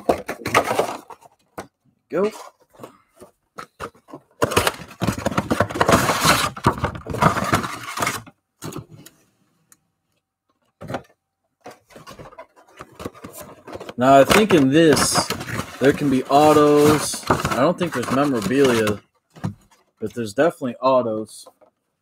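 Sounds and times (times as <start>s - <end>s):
cardboard box tearing: 14.0s - 19.0s
foil packs crinkling: 14.0s - 19.0s.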